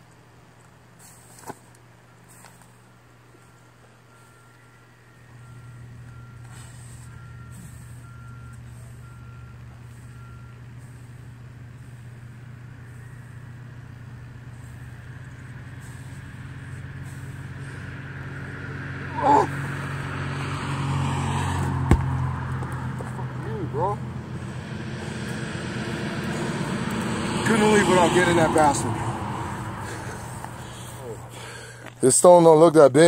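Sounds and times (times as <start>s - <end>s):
highway traffic: 0.0s - 33.0s
truck engine drone: 2.2s - 32.1s
brief loud pitched sound: 23.8s - 31.2s.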